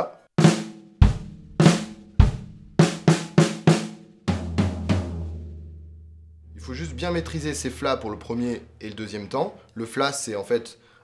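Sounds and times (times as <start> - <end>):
floor tom strokes: 0.5 - 9.6
bass drum kick: 1.0 - 3.2, 4.3 - 8.9.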